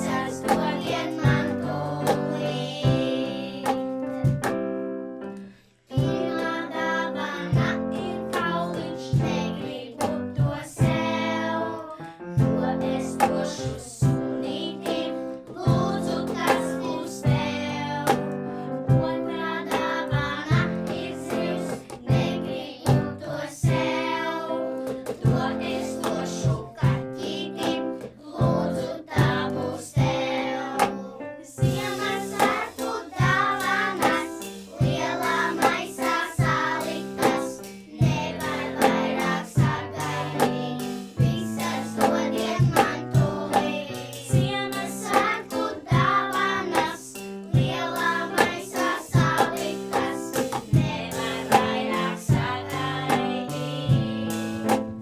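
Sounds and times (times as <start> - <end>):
children's choir singing: 0.0 - 4.4, 5.9 - 54.8
keyboard: 0.0 - 55.0
cajon and cymbal beat: 12.4 - 18.9, 19.5 - 31.0, 31.6 - 55.0.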